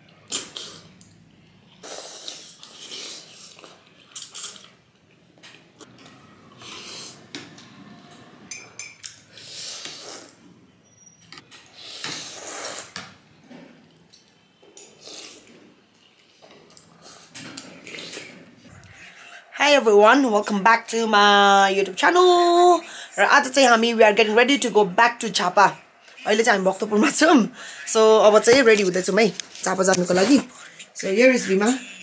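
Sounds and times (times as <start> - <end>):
wet noodle slurps: 0.2 - 1.1, 1.7 - 4.8, 6.5 - 7.3, 9.2 - 10.4, 11.8 - 13.0, 14.8 - 15.6
cutlery clinking on ceramic bowls: 8.4 - 9.3.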